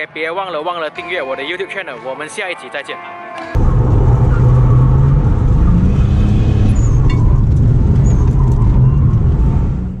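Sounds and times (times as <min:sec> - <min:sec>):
car engine running inside cabin: 0:03.6 - 0:10.0.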